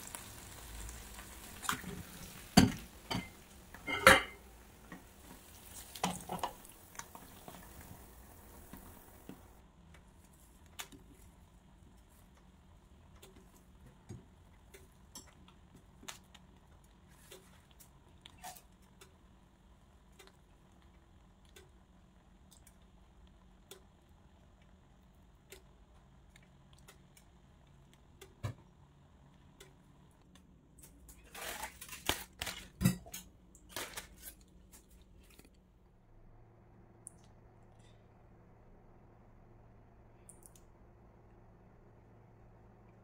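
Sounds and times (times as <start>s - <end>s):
light ticks: 22.4s - 24.7s.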